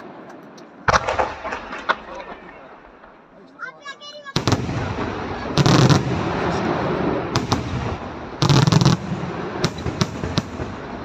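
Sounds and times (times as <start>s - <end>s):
firework shells bursting: 0.0s - 2.4s, 7.3s - 11.0s
sharp firework reports: 4.2s - 11.0s.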